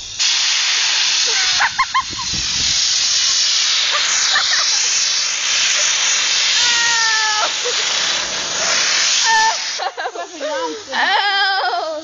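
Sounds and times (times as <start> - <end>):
compressed air gun hissing: 0.0 - 11.6
high squeal-like cry: 6.5 - 7.6.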